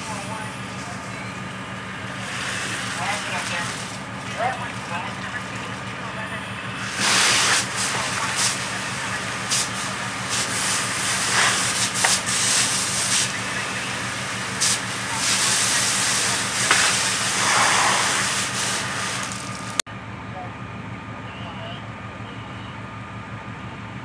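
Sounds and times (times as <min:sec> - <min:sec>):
steady low hum: 0:00.0 - 0:21.0
hose nozzle spraying water: 0:01.7 - 0:05.8, 0:06.8 - 0:19.8.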